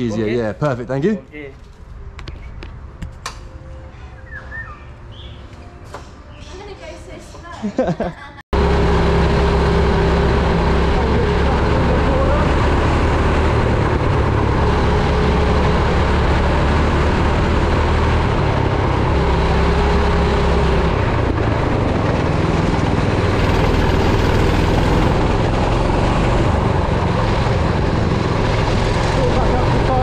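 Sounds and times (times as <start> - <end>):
go-kart engine running: 8.6 - 30.0.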